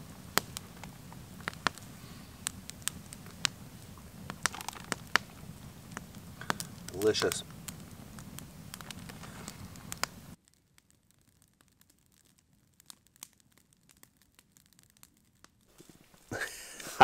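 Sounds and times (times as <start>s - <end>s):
campfire crackling: 0.0s - 17.0s
plastic bag crinkling: 4.5s - 5.0s.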